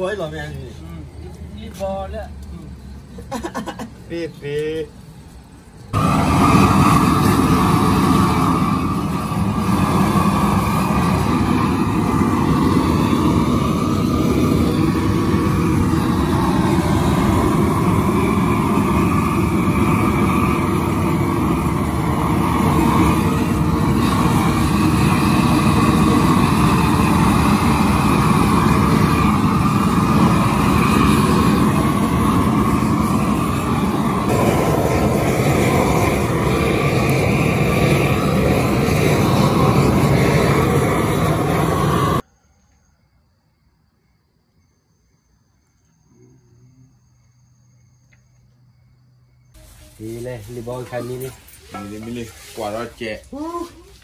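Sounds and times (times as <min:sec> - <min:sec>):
torch flame rushing: 0:05.8 - 0:42.2, 0:49.6 - 0:53.9.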